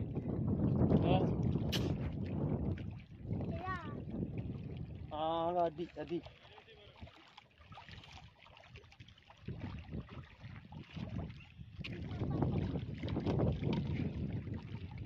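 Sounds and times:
wind buffeting the microphone: 0:00.0 - 0:06.0, 0:09.4 - 0:15.0
small waves lapping against rocks: 0:00.7 - 0:15.0.

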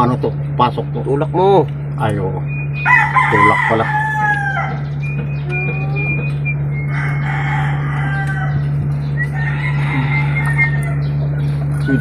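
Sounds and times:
steady low hum: 0:00.0 - 0:12.0
bird calls: 0:02.0 - 0:12.0
rooster crowing: 0:02.8 - 0:11.3.

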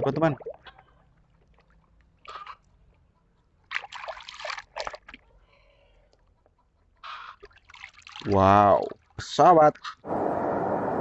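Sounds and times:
water sloshing and splashing in a tub: 0:00.0 - 0:05.6, 0:07.0 - 0:10.0.

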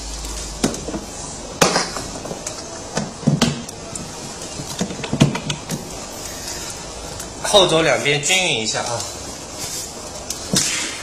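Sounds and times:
plastic parts clicking and knocking: 0:00.6 - 0:05.8.

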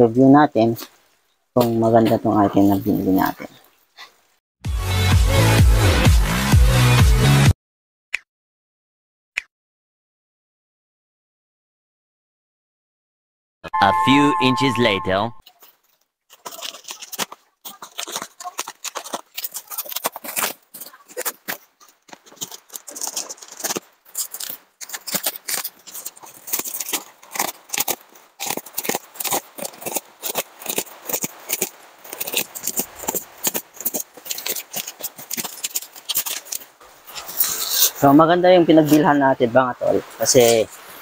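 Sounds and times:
plastic wrapping crackling: 0:15.4 - 0:38.0.

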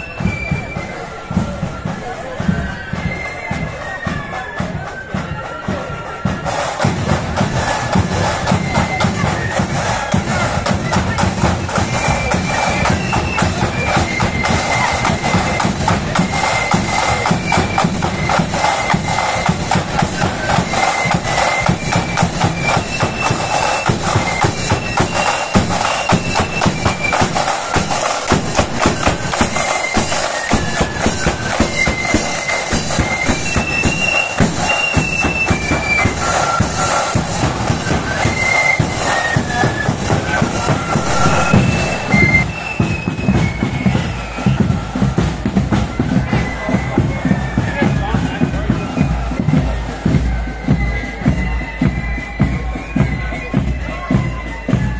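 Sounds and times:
high flute melody: 0:00.0 - 0:54.9
rapid snare drumming: 0:04.6 - 0:47.0.

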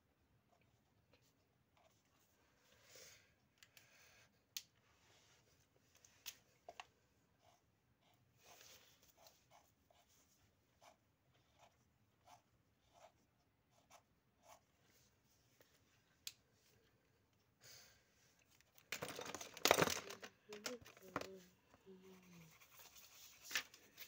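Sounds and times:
pens scratching on paper: 0:07.4 - 0:14.7, 0:19.0 - 0:24.0.

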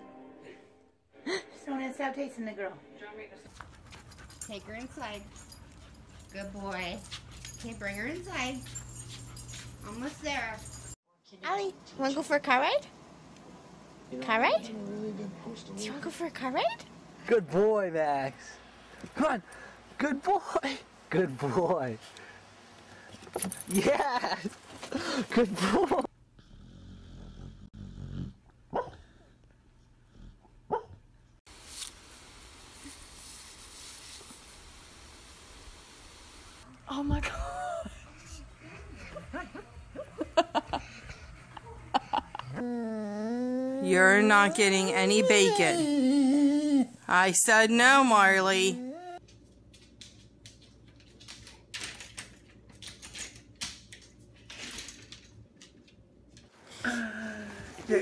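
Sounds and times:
dog growling: 0:26.4 - 0:29.4, 0:42.3 - 0:47.0
dog yipping: 0:30.7 - 0:31.0.

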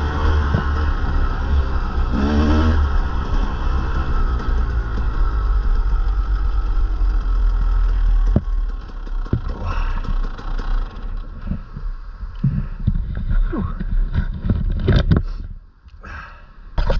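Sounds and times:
motocross bike engine: 0:00.0 - 0:15.0
bike knocks and rattles: 0:07.1 - 0:11.8.

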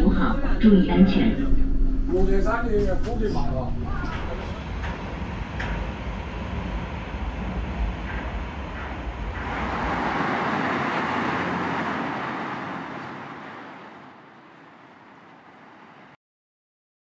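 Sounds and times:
passing vehicle hiss: 0:08.6 - 0:16.2.

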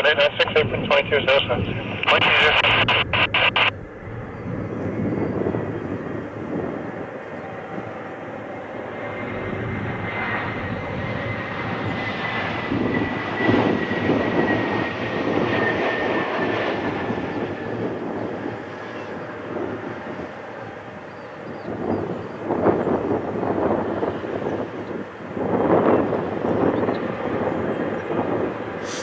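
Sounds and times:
jet engines spooling up: 0:00.2 - 0:07.1.

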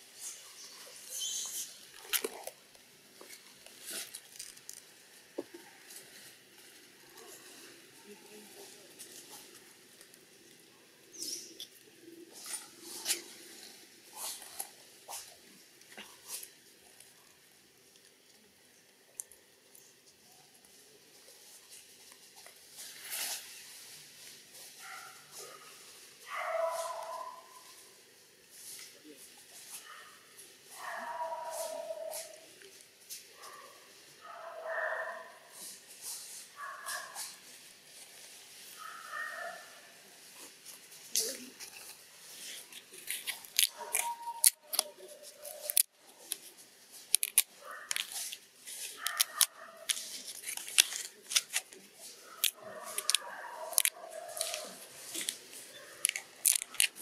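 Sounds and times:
light rustles: 0:34.9 - 0:57.0.

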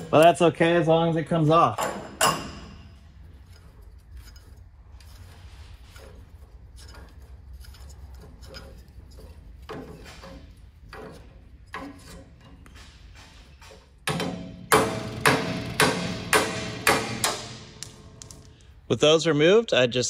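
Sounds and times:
metal scraping and clicking: 0:01.4 - 0:14.0.

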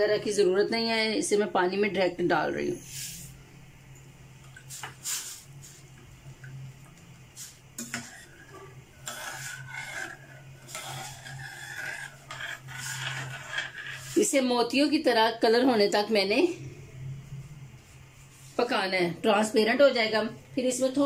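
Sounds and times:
ladle scraping pan bottom: 0:07.8 - 0:14.4.

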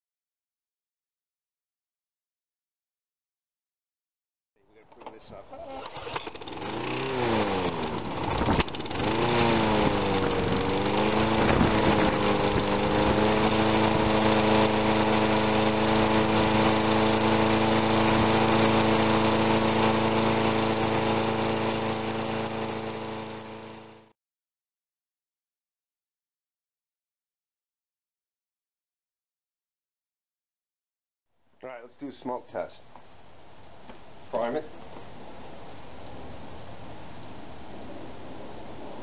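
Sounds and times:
lawn mower engine running: 0:04.9 - 0:24.1.

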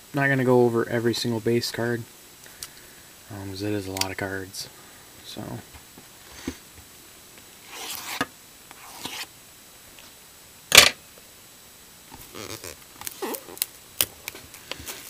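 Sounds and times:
plastic crinkling: 0:12.2 - 0:15.0
plastic wrap ripping: 0:12.2 - 0:15.0.

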